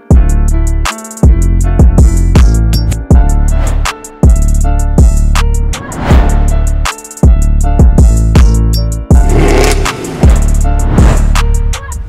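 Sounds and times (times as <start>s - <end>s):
music with steady drum beat: 0.1s - 3.4s, 6.4s - 12.0s.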